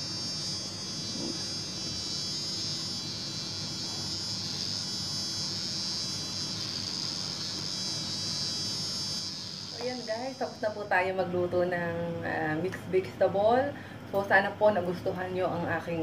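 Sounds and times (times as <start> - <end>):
high-pitched buzz: 0.0 - 12.3.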